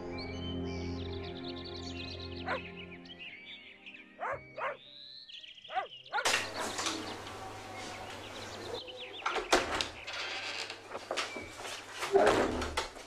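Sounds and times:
birds chirping: 0.0 - 13.0
dog barking: 2.4 - 2.6, 4.2 - 4.8, 5.7 - 6.4.

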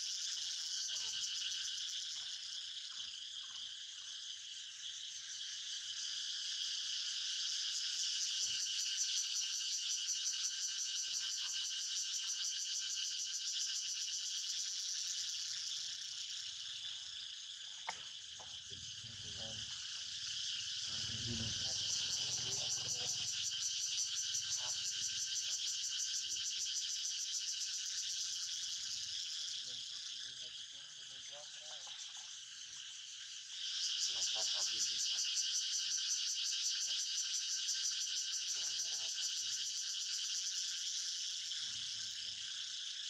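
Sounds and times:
insect chorus buzzing: 0.0 - 43.0
single click: 17.8 - 18.1.

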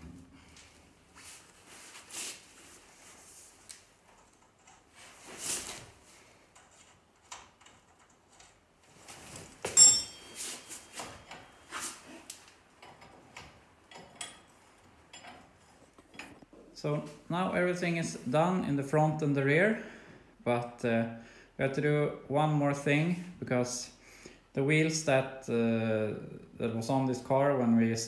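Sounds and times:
tools and metal parts clinking: 9.6 - 12.0, 12.8 - 16.5.

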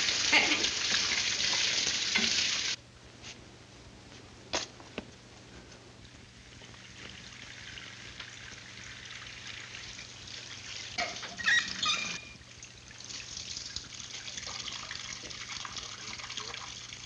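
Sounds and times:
water splashing into sink: 0.0 - 2.8.

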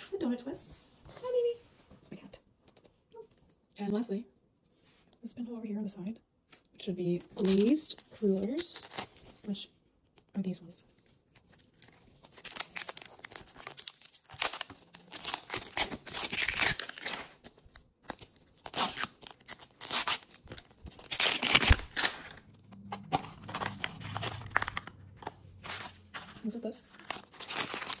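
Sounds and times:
wrapping tearing and crinkling: 7.2 - 9.6, 11.2 - 28.0.

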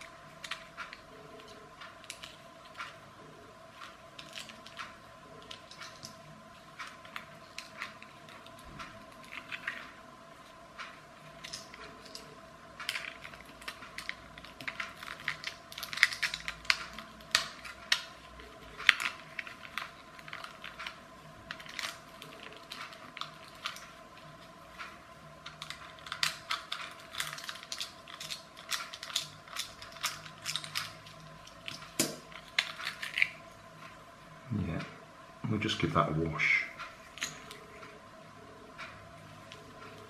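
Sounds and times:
plastic parts snapping: 25.5 - 33.4.

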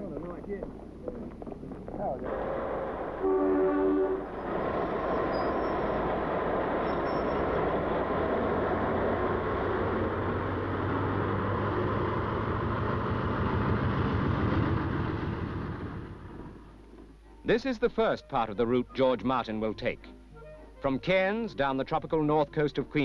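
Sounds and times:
train rumble: 0.0 - 17.4
locomotive engine drone: 0.0 - 17.6.

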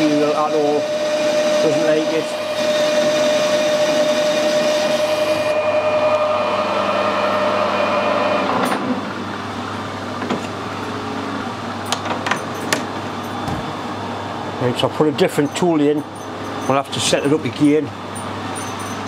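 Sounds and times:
metal lathe whining: 0.0 - 9.6
low machine hum: 0.0 - 19.0.

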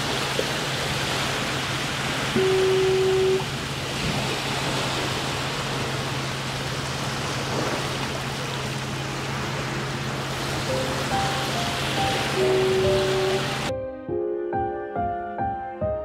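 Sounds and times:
steady rushing noise: 0.0 - 13.7
low steady hum: 0.1 - 13.7
held note: 2.3 - 3.6, 10.8 - 13.8.

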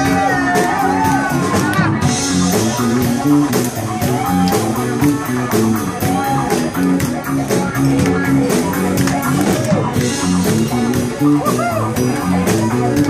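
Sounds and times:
bass: 0.0 - 13.0
guitar: 0.0 - 13.0
steady drum beat: 0.0 - 13.0.

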